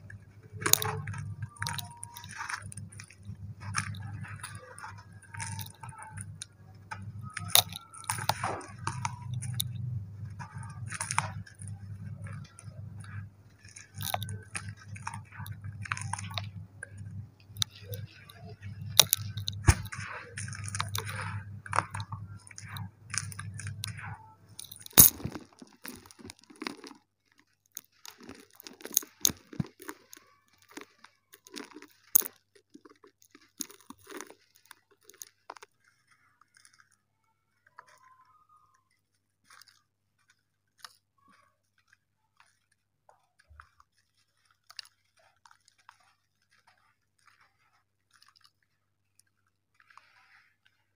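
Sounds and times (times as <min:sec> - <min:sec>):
steady low hum: 0:00.0 - 0:25.4
dirt clumps crunching: 0:00.0 - 0:37.0.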